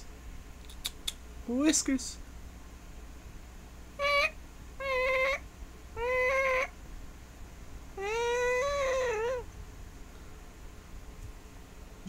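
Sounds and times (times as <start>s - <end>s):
cat meowing: 6.0s - 6.7s, 8.0s - 9.4s.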